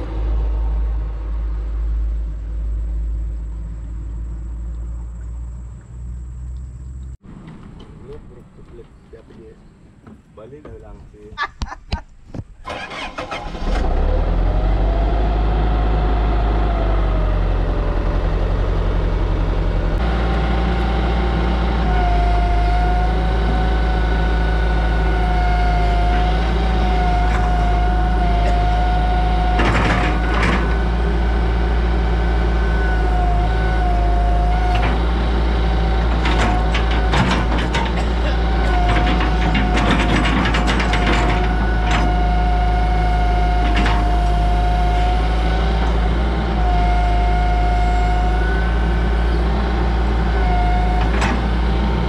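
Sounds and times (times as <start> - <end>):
excavator diesel engine running: 12.6 - 52.0
wavering hydraulic whine: 13.0 - 52.0
short clunks: 25.9 - 31.0, 35.9 - 42.5.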